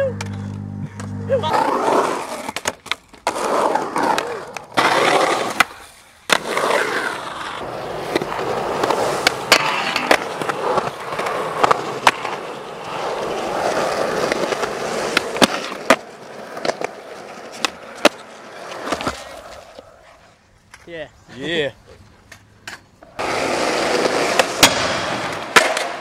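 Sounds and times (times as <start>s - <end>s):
skateboard wheels rolling on concrete: 0.0s - 26.0s
skateboard clacking on ground: 7.4s - 20.0s, 22.2s - 26.0s.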